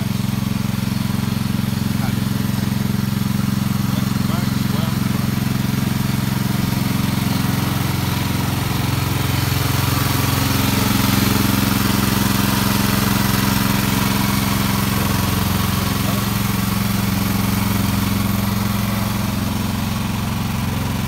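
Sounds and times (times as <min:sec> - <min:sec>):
tractor engine running under load: 0:00.0 - 0:21.0.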